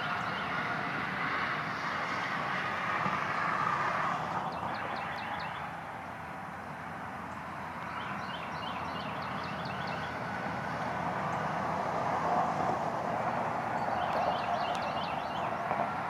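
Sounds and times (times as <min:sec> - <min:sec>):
steady rushing noise: 0:00.0 - 0:16.0
songbird chirping: 0:04.4 - 0:06.2, 0:07.3 - 0:10.3, 0:13.7 - 0:15.8.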